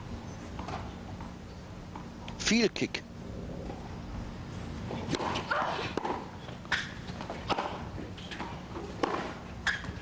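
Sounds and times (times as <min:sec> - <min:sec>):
tennis ball hit and bouncing: 0:05.0 - 0:10.0.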